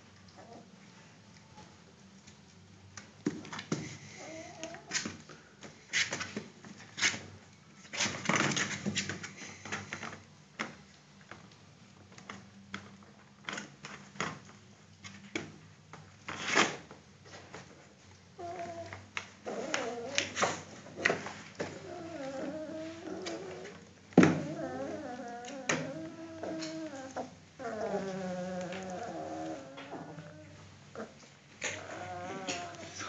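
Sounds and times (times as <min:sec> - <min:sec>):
puppies whimpering: 0:21.8 - 0:23.8, 0:24.4 - 0:33.0.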